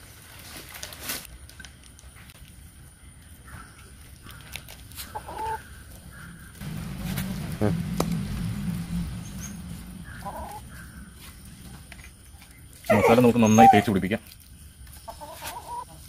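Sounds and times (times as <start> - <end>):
chickens clucking: 5.0 - 14.0, 14.8 - 16.0
choppy low-pitched noise: 6.6 - 12.1.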